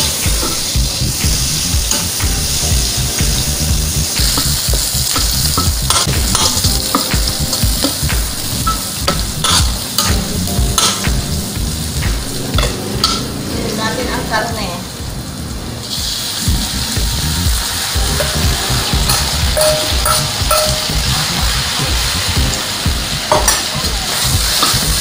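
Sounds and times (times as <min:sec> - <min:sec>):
onions sizzling in oil: 0:00.0 - 0:14.7, 0:15.3 - 0:25.0.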